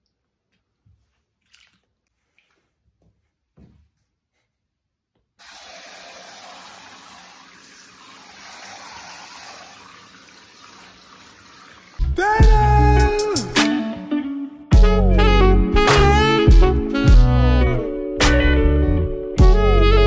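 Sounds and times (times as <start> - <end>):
small splashes in bathwater: 1.4 - 2.6, 5.4 - 12.0
shower head spraying water: 5.4 - 12.0.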